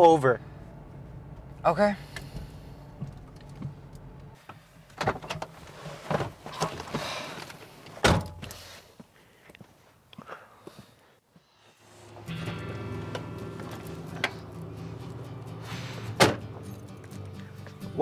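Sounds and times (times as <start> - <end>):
car engine humming: 0.0 - 5.7, 11.8 - 17.8
car door thud: 16.2 - 16.4.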